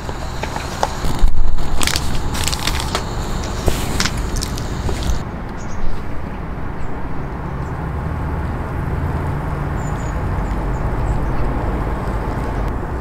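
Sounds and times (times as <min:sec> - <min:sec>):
hot water trickling onto coffee: 0:00.0 - 0:05.2.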